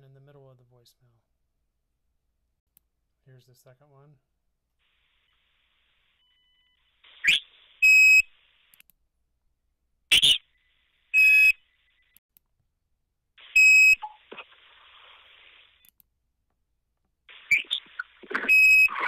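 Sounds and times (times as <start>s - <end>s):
scratchy garbled phone noise: 13.4s - 15.8s, 17.3s - 19.0s
short sweeping chirps: 17.3s - 19.0s
loud high beeps: 17.5s - 19.0s.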